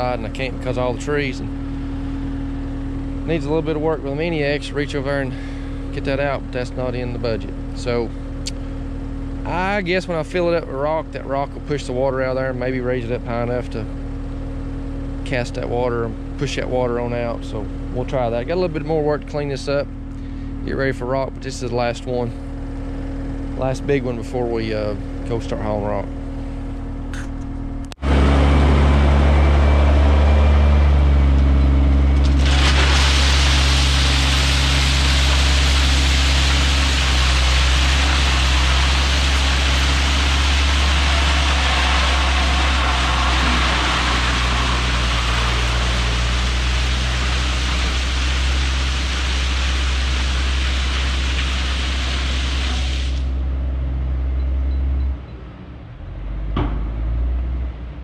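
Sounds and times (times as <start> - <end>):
dump truck engine running: 0.0 - 58.0
rock pouring out: 32.2 - 53.2.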